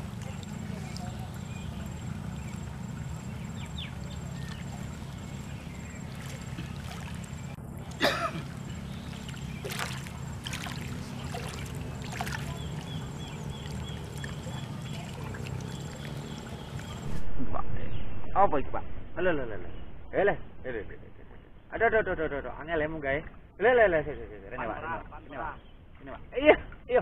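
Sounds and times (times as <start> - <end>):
steady low rumble: 13.0 - 22.8.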